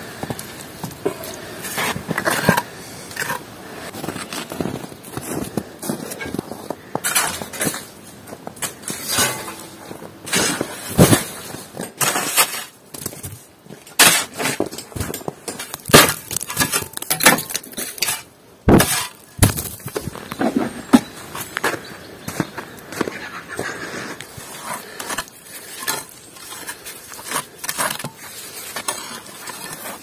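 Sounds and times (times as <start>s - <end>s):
knocking snow and ice off roof: 3.9s - 21.1s.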